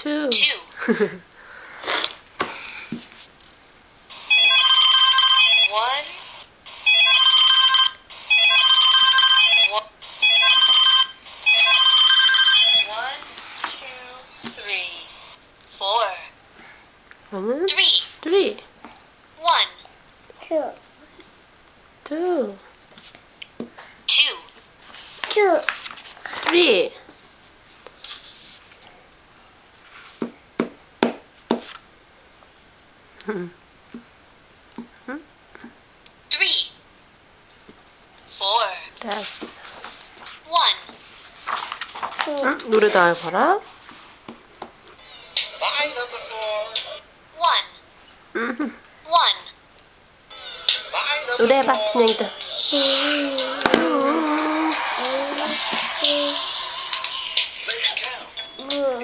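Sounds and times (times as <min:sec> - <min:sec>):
electronic telephone ring beeps: 0:04.2 - 0:05.8, 0:06.8 - 0:12.9.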